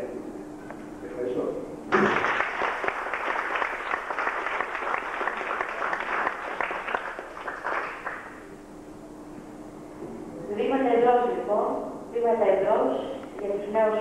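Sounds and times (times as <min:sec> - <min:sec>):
audience applauding: 0:01.9 - 0:08.5.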